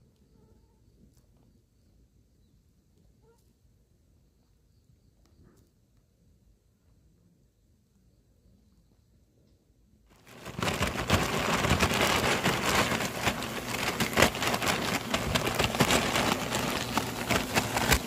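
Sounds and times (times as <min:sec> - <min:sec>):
plastic bag crinkling: 0:10.1 - 0:18.0.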